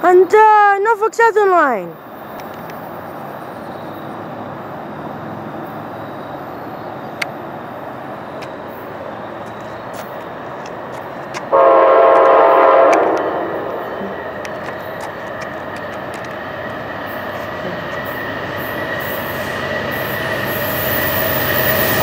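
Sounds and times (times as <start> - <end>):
train rumbling: 0.0 - 22.0
train horn blast: 11.5 - 14.2.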